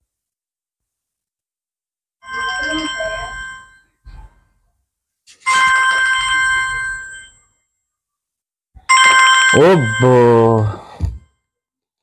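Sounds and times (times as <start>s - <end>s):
phone ringtone chiming: 2.2s - 3.8s, 5.5s - 7.4s, 8.9s - 11.0s.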